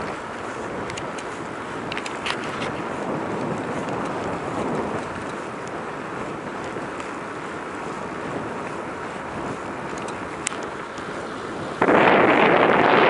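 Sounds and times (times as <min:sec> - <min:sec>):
faint ticks: 0:00.0 - 0:07.5, 0:09.8 - 0:11.1
wind rushing over microphone: 0:00.0 - 0:13.0.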